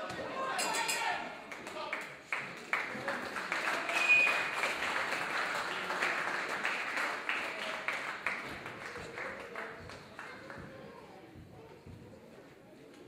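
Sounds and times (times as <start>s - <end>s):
crowd cheering and clapping: 1.5s - 10.6s.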